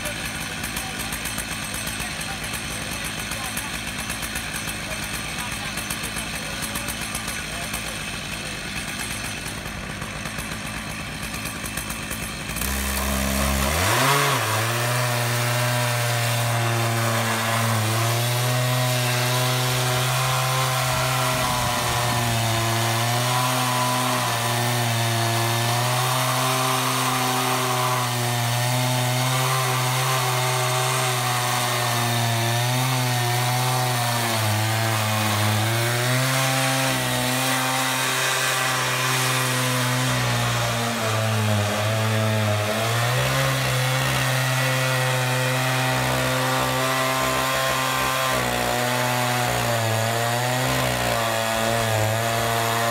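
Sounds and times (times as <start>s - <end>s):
chainsaw cutting a log: 0.0s - 52.9s.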